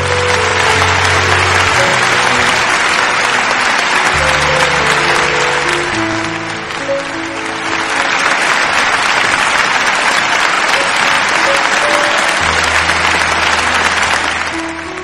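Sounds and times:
background music: 0:00.0 - 0:15.0
crowd applause: 0:00.0 - 0:15.0.

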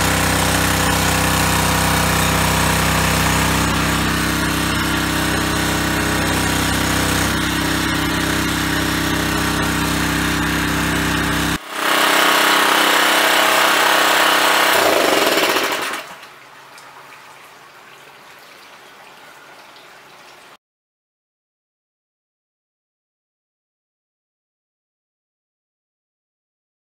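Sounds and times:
small gas engine running: 0:00.0 - 0:16.2.

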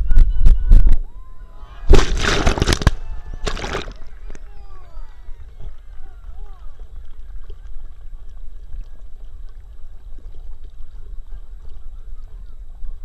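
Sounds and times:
pool water sloshing: 0:01.8 - 0:13.0
dog paddling splashes: 0:01.9 - 0:04.4.

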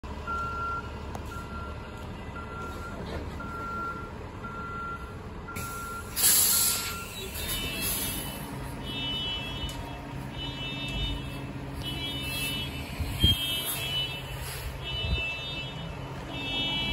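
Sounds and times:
bus backup alarm beeping: 0:00.1 - 0:16.9
air brake hiss: 0:05.6 - 0:08.4, 0:14.4 - 0:14.8.

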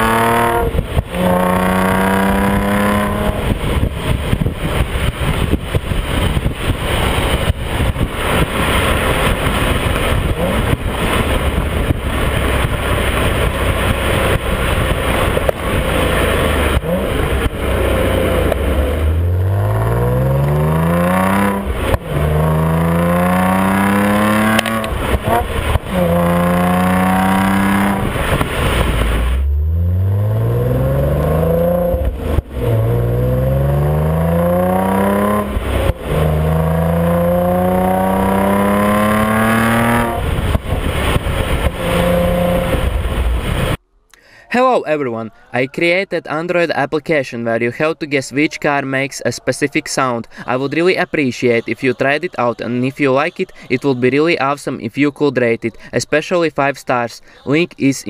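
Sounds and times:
car exhaust accelerating: 0:00.0 - 0:43.8
road and wind noise: 0:00.0 - 0:43.9.

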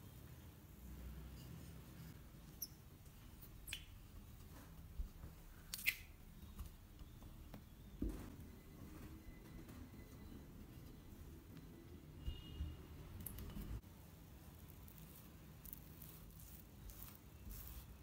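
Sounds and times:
rolling pin rubbing on dough: 0:15.0 - 0:18.0.

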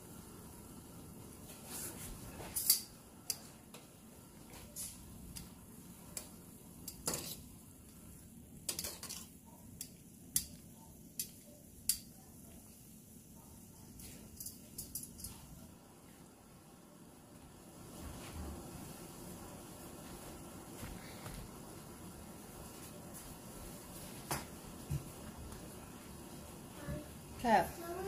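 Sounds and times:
faint steady hum: 0:00.0 - 0:28.0
metal tongs clinking against pot: 0:08.7 - 0:10.6, 0:14.3 - 0:15.4.

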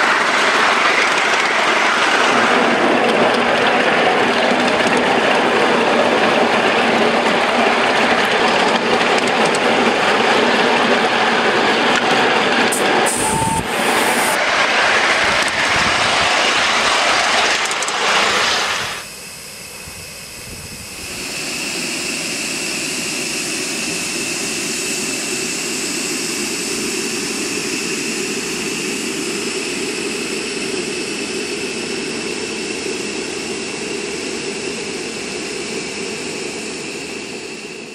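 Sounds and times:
loud rushing of moving engine: 0:12.7 - 0:19.1
steam hissing: 0:12.7 - 0:20.0, 0:20.8 - 0:26.9
faint whistling tone: 0:13.1 - 0:14.3.

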